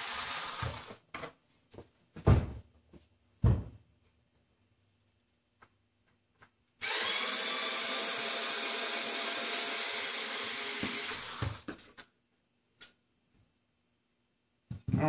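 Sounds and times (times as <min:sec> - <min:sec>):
power screwdriver running: 0:00.0 - 0:01.0, 0:06.8 - 0:11.7.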